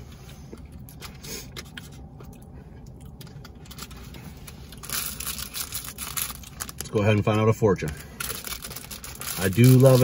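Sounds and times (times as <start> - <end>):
plastic wrapper crinkling: 4.7 - 10.0.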